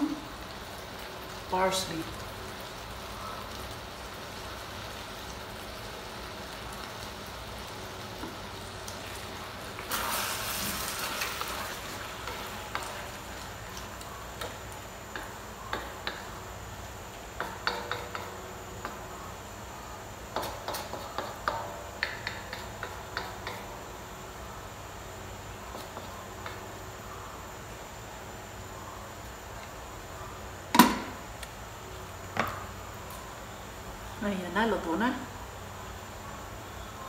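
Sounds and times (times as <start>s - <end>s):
food sizzling in a wok: 0.0s - 37.0s
spatula knocking on metal wok: 17.4s - 19.0s.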